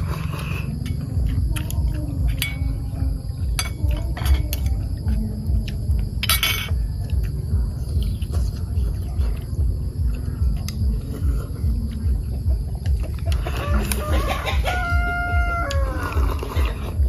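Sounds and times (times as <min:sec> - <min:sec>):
rooster crowing: 0:13.3 - 0:16.4.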